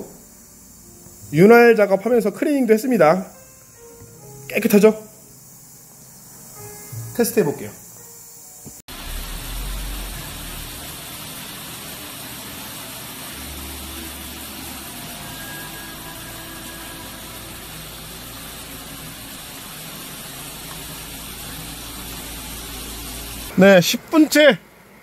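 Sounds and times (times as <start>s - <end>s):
low rumble: 8.9s - 11.6s
heavy rain on car roof: 8.9s - 23.6s.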